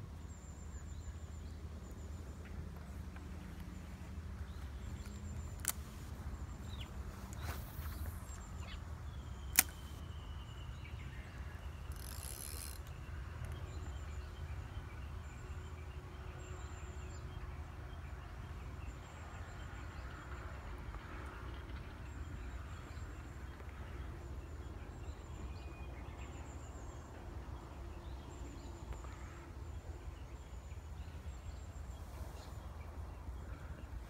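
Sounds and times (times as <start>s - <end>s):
sharp clicks: 9.4s - 10.0s.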